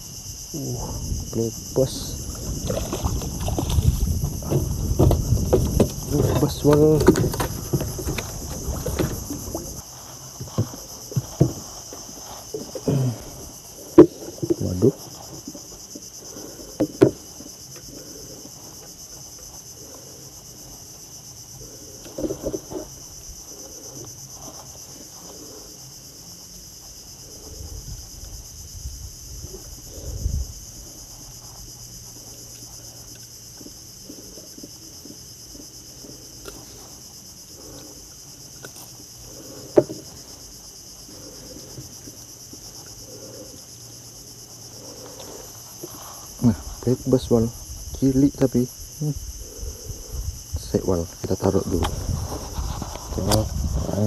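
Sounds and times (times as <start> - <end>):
high insect chorus: 0.0 - 54.0
knocks and thumps in wooden boat: 1.1 - 17.9, 22.0 - 23.2, 38.8 - 42.7.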